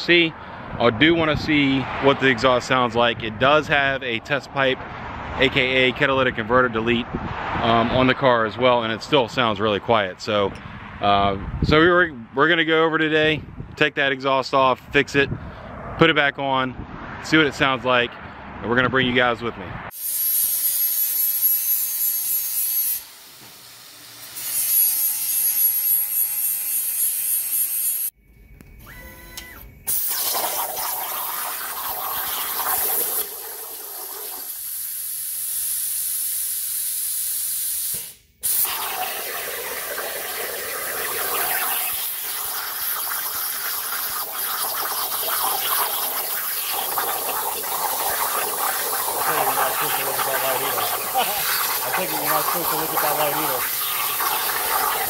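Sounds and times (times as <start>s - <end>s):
angle grinder cutting pipe: 20.0s - 28.1s, 37.9s - 55.0s
plasma cutter hissing: 29.9s - 55.0s.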